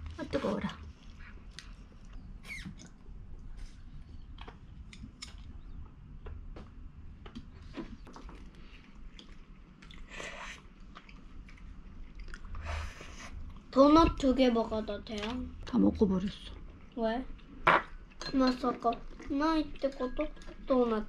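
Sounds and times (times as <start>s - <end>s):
chewing: 8.1s - 13.7s.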